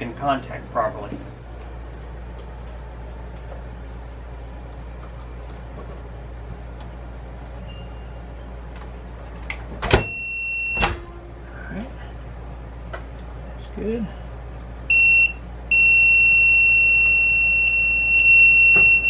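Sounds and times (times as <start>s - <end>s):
low steady hum: 0.0s - 19.0s
high continuity beep: 10.0s - 10.9s, 14.9s - 19.0s.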